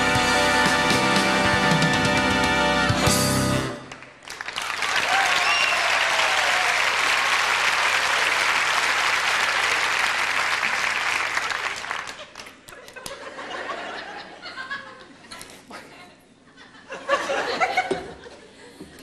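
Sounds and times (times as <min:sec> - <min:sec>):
recorded entrance music: 0:00.0 - 0:04.1
audience applauding: 0:03.8 - 0:13.2.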